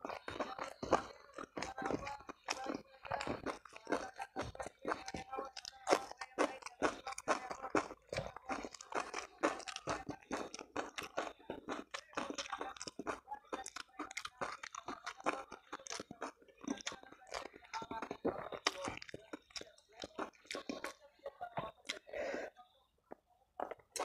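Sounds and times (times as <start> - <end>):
person chewing and crunching: 0.0 - 22.5, 23.1 - 24.0
crisp mouth clicks: 13.6 - 17.8.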